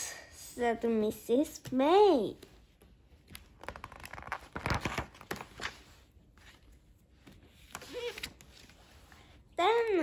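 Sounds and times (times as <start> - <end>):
book page turning: 2.5 - 9.2.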